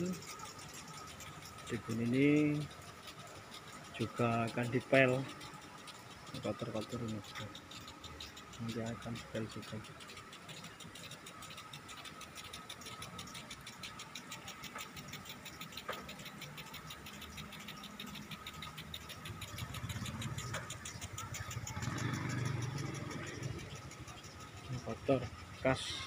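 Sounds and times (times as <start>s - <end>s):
low engine-like rumble: 0.0s - 26.0s
sprinklers ticking rapidly: 0.0s - 26.0s.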